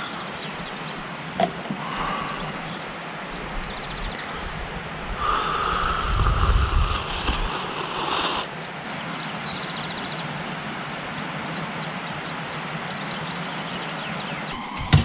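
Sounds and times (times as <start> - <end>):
steady hiss: 0.0 - 8.8
bird trill: 14.5 - 15.0
hum with high tone: 14.6 - 15.0.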